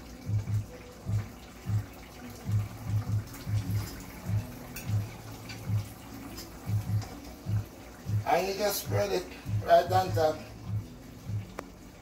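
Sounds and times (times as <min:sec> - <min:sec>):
spoon clinking and scraping a pan: 0:03.8 - 0:07.2.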